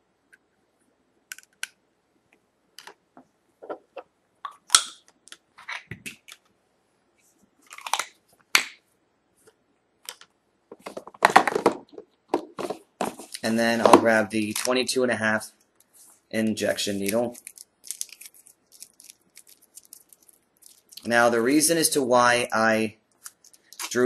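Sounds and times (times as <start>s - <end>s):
packaging crinkling: 17.0s - 21.1s, 23.2s - 24.0s.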